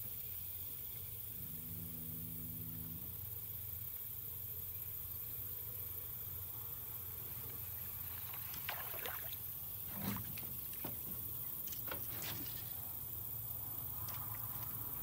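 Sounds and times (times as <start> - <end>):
light water splashes: 7.5 - 12.8.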